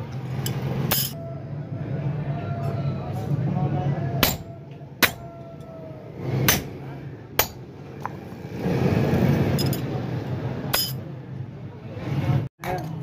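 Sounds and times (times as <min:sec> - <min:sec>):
hammer striking chisel on metal: 0:00.4 - 0:01.2, 0:04.2 - 0:05.3, 0:06.5 - 0:06.7, 0:07.4 - 0:08.2, 0:10.7 - 0:11.0.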